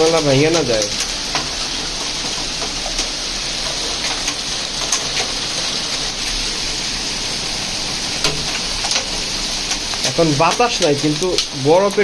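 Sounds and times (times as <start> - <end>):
hailstones ticking: 0.0 - 12.0
heavy rain hissing: 0.0 - 12.0.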